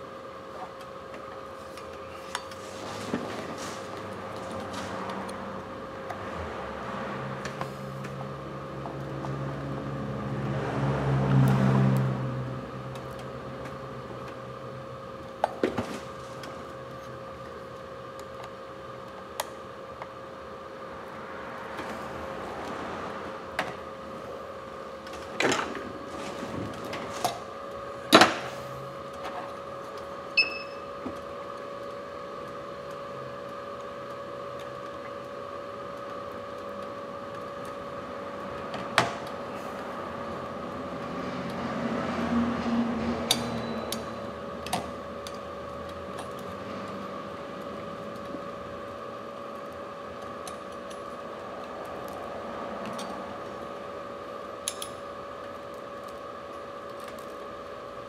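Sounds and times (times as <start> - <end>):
electrical hum: 0.0 - 58.0
short high beep: 30.4 - 30.9.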